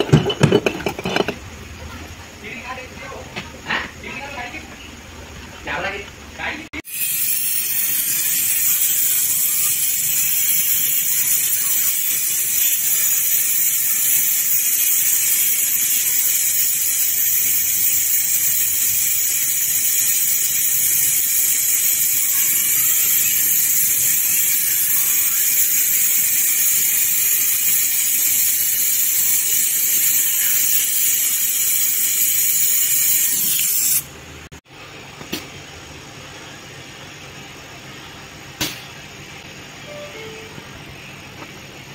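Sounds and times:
torch flame hissing: 6.8 - 34.1.

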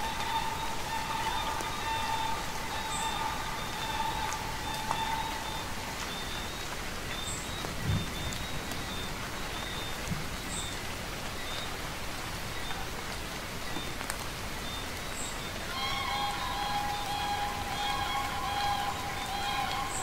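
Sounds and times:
faint high-pitched tones: 0.0 - 6.8, 15.7 - 20.0
steady rainfall: 0.0 - 20.0.

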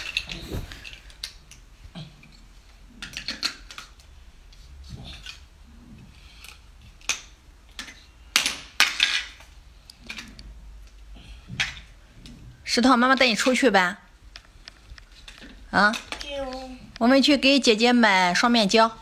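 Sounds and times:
plastic building blocks clicking: 3.0 - 4.1, 6.4 - 11.0
blocks knocking on tile floor: 7.0 - 9.4.

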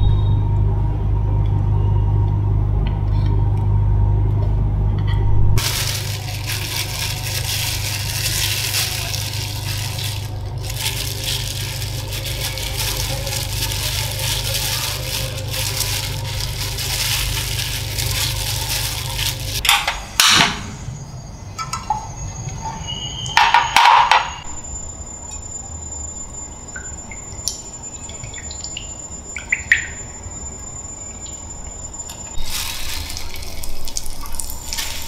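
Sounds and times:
breadcrumbs crunching and rustling: 5.6 - 19.6, 32.4 - 35.0.

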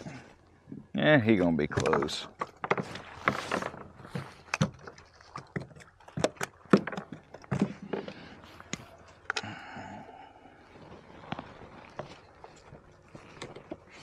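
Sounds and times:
rustling scrape: 2.7 - 4.5.

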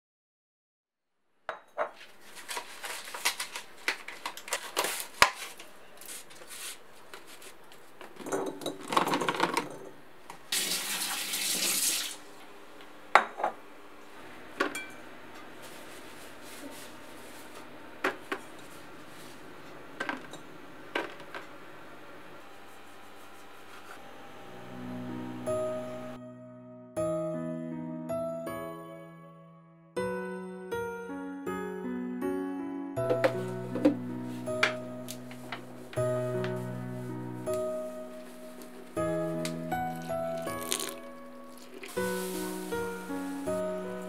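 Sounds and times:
tomatoes and dishes clattering: 8.1 - 10.0
faucet running: 10.5 - 12.3.

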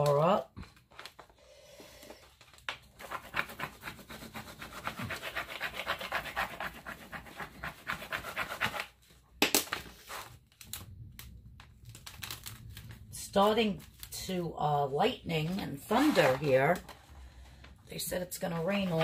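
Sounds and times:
tool rubbing vinyl tape: 3.0 - 9.0.

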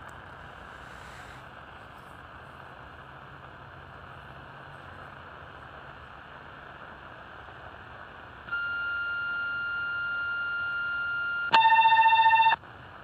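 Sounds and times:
radio receiver hiss: 0.0 - 3.6
high call tone: 8.5 - 12.6
lower signalling tone: 8.5 - 12.6.

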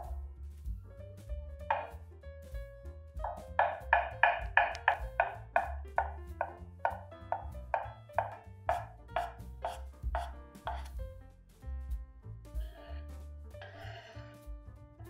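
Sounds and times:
background music: 0.0 - 15.0
knife chopping on cutting board: 1.7 - 2.0, 3.2 - 11.0.

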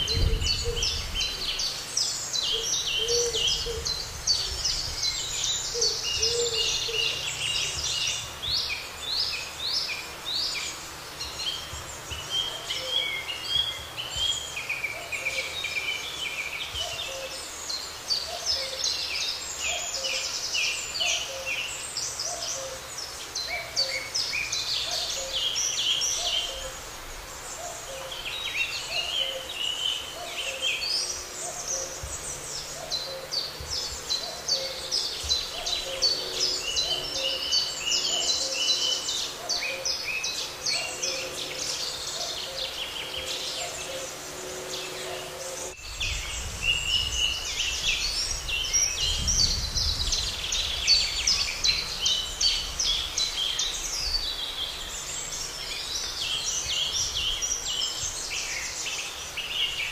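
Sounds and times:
songbirds chirping and trilling: 0.0 - 59.9.

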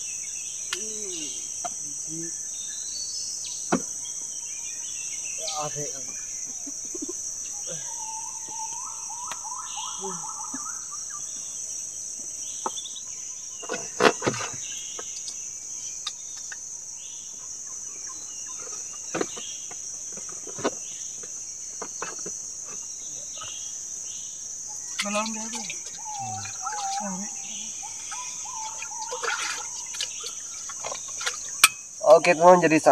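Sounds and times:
faint chirps: 0.0 - 32.9
insect chorus: 0.0 - 32.9
warbling bird call: 6.4 - 11.4, 24.7 - 31.9.

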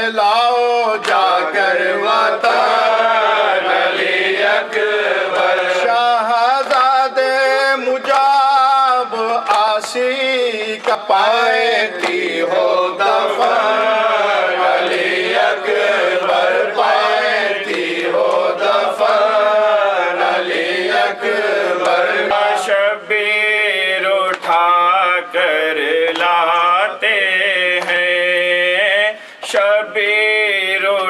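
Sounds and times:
man chanting a lament: 0.0 - 3.4, 5.1 - 14.5, 22.2 - 31.0.

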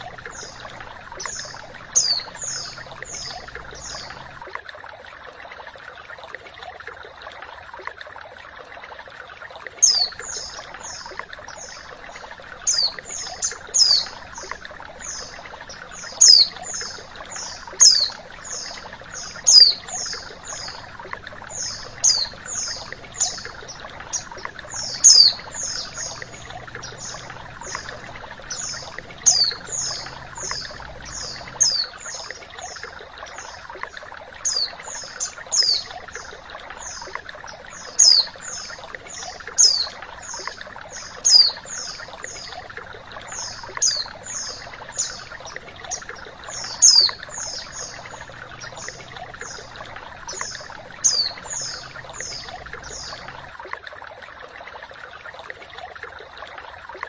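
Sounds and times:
flowing water rushing: 0.0 - 57.0
bird high downward chirps: 21.5 - 32.3.

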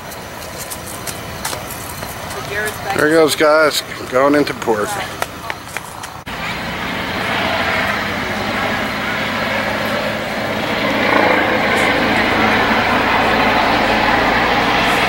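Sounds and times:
boat diesel engines droning: 0.0 - 15.0
rushing noise: 6.1 - 15.0.

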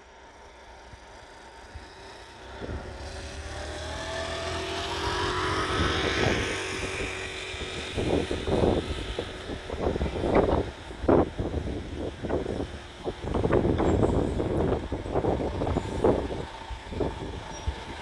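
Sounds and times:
motor scooter passing: 1.2 - 18.0
wind bumps on microphone: 5.0 - 18.0.

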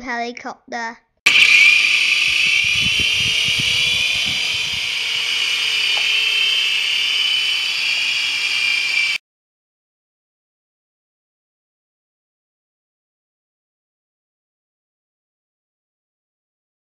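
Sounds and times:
toy helicopter motors whining: 1.3 - 9.2.

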